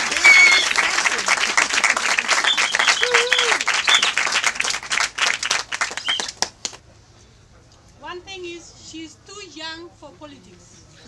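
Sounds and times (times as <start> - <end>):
crowd cheering: 0.0 - 6.6
crowd clapping: 0.0 - 6.8
short whistles: 0.1 - 0.9, 2.4 - 4.2, 5.9 - 6.4.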